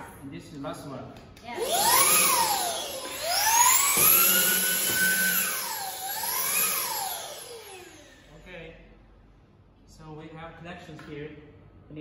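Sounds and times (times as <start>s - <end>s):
vacuum pump motor whining: 1.5s - 8.3s.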